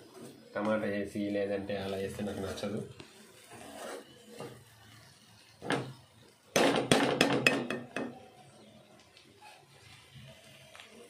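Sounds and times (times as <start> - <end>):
spatula scraping a pan: 1.8 - 6.1.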